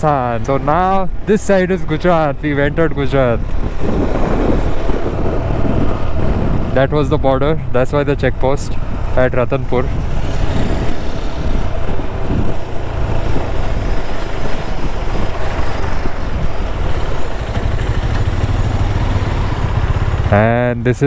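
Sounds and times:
wind rushing over microphone: 0.2 - 20.2
motorcycle engine running: 15.6 - 20.8.

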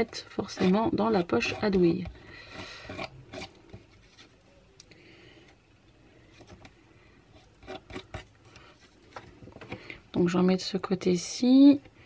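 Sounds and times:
metal spatula scraping stencil: 0.0 - 4.4, 7.3 - 9.0.

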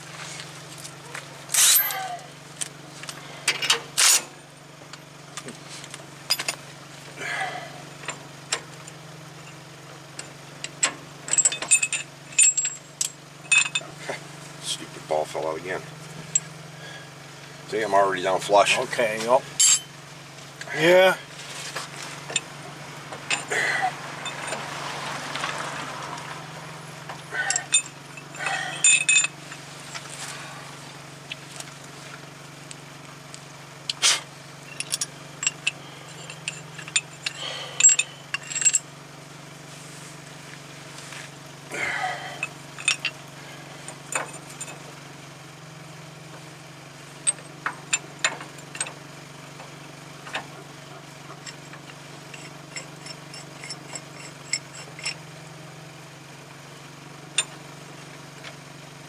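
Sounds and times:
steady low hum: 0.0 - 58.5
metal clinks and taps: 10.2 - 14.0, 19.6 - 19.9, 24.2 - 24.7, 27.0 - 29.6, 34.6 - 38.9, 42.4 - 43.2, 47.2 - 49.0, 51.3 - 55.2.

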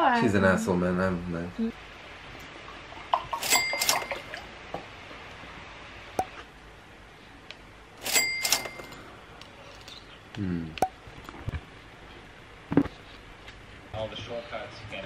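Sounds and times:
faint room hiss: 0.0 - 15.0
bright clinks with ring: 8.0 - 9.0.

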